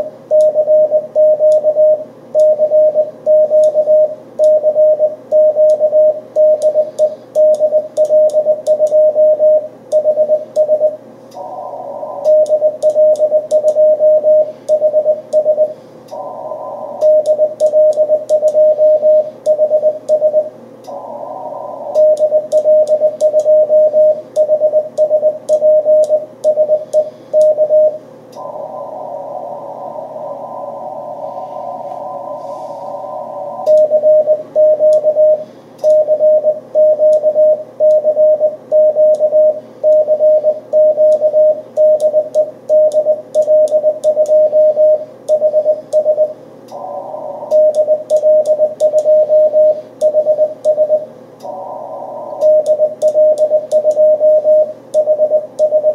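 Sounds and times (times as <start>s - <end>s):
morse code tone: 0.0s - 20.5s, 21.6s - 28.9s, 32.0s - 55.9s
radio band hiss: 11.4s - 12.4s, 16.0s - 17.1s, 20.9s - 22.0s, 28.4s - 33.7s, 46.7s - 47.7s, 51.4s - 52.5s.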